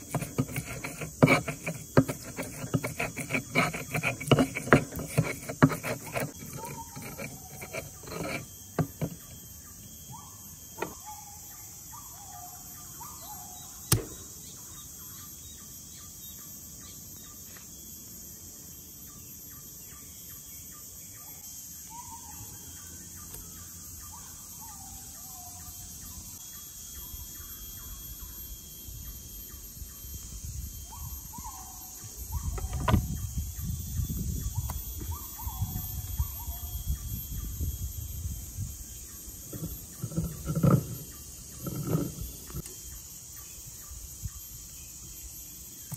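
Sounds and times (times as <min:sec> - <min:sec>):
stone pestle grinding in mortar: 0:00.0 - 0:09.4, 0:39.5 - 0:42.6
high-pitched insect drone: 0:00.0 - 0:45.9.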